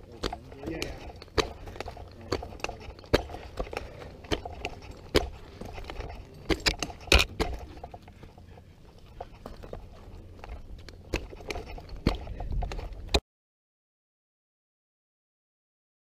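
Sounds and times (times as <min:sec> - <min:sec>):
metal gear clinking: 0:00.0 - 0:13.2
climber knocking against bark: 0:00.1 - 0:08.2.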